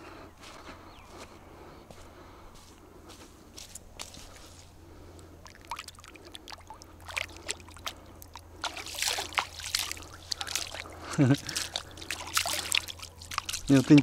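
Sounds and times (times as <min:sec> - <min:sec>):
water splashing and trickling: 0:04.0 - 0:14.0.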